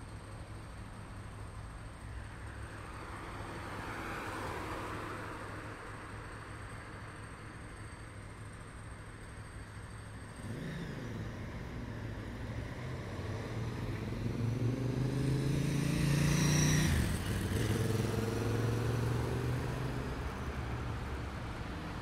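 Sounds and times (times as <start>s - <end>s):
hum of passing traffic: 0.0s - 22.0s
vehicle passing close by: 10.4s - 22.0s.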